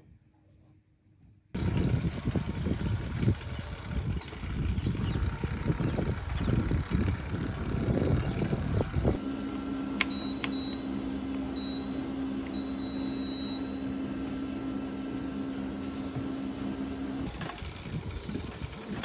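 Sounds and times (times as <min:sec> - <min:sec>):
wind rumble on microphone: 0:01.6 - 0:09.2, 0:17.4 - 0:19.0
treadmill electric hum: 0:01.6 - 0:19.0.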